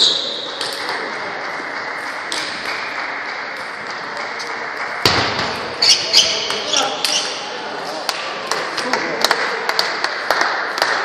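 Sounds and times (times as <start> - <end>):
din of a busy hall: 0.0 - 11.0
table tennis balls clicking: 0.3 - 4.9.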